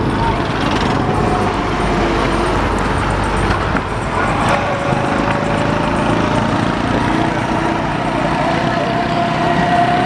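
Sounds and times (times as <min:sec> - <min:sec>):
motorcycle engine: 0:00.0 - 0:10.0
steady engine tone: 0:00.0 - 0:10.0
truck engine: 0:00.0 - 0:10.0.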